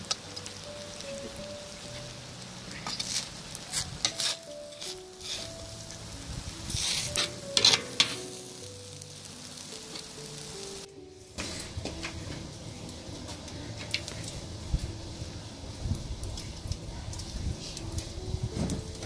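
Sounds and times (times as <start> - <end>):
slow instrumental music: 0.0 - 19.0
metal spatula scraping a pot: 2.8 - 5.6, 6.7 - 8.3.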